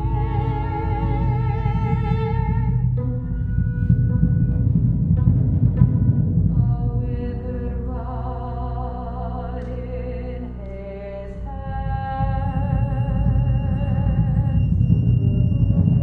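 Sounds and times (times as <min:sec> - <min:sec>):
chamber ensemble playing: 0:00.0 - 0:06.7
low rumbling drone: 0:00.0 - 0:16.0.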